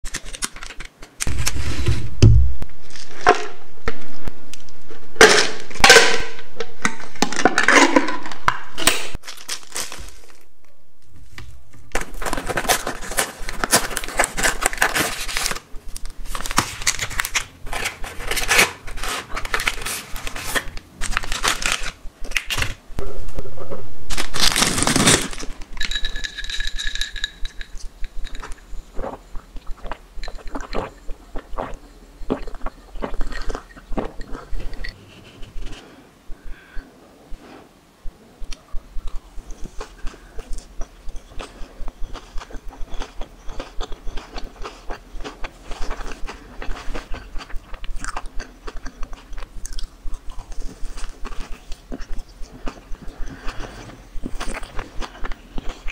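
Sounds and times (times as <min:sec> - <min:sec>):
plastic wrappers crinkling and tearing: 0:09.2 - 0:22.8, 0:24.1 - 0:27.1
loud ripping: 0:24.1 - 0:25.6.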